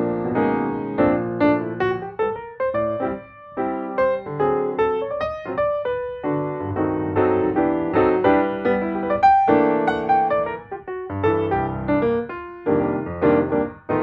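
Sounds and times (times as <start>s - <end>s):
piano melody: 0.0s - 14.0s.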